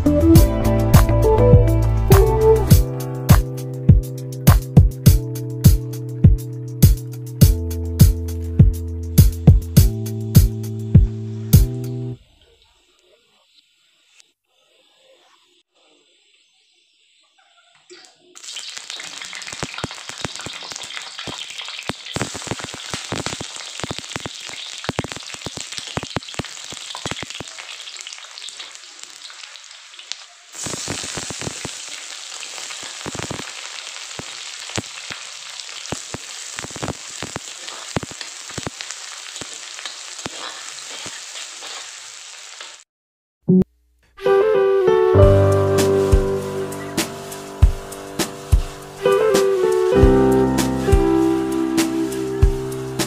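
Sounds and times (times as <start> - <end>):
oil sizzling and crackling: 17.9 - 42.9, 45.6 - 53.0.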